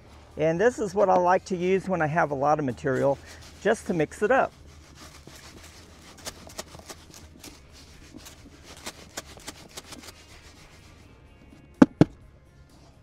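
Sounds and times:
sharp knocks: 0:11.8 - 0:12.2.

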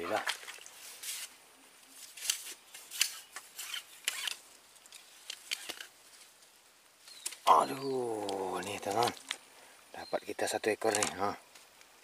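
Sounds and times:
crisp clicks and rustles: 0:00.2 - 0:07.5, 0:08.2 - 0:09.5.

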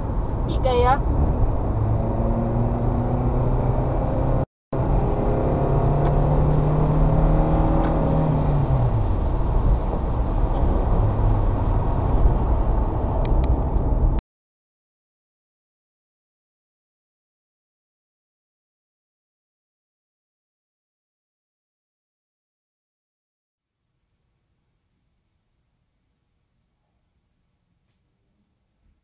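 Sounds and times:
car engine: 0:00.0 - 0:14.2
road noise inside car: 0:00.0 - 0:14.2.

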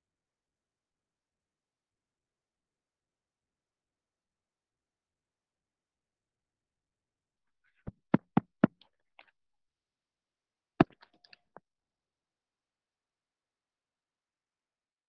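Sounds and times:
knocking: 0:07.9 - 0:08.7.

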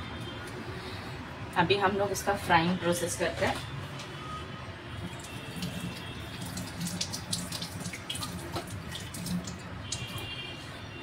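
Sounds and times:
tap water running: 0:05.0 - 0:10.2.

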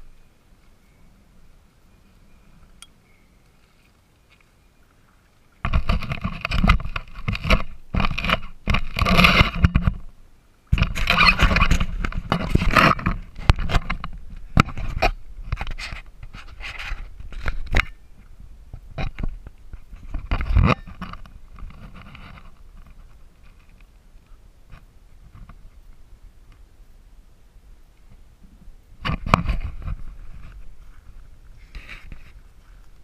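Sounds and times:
paddle scraping and knocking on kayak: 0:05.6 - 0:10.0, 0:10.7 - 0:18.0, 0:29.0 - 0:33.0.

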